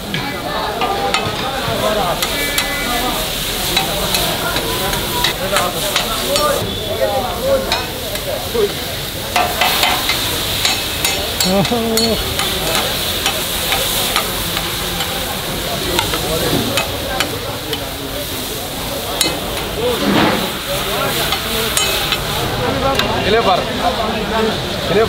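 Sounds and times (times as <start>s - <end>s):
meat sizzling on a griddle: 0.0s - 25.0s
metal spatulas scraping and clanking: 19.2s - 22.2s.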